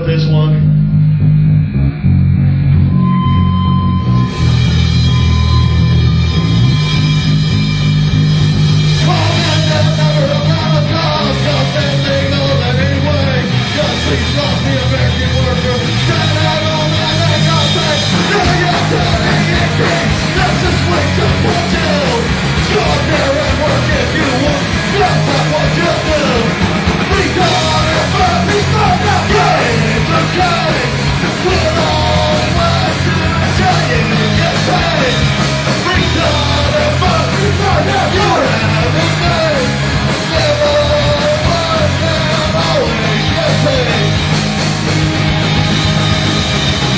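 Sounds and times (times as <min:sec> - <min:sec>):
live rock band playing: 0:00.0 - 0:46.9
shouted vocal: 0:18.1 - 0:35.3.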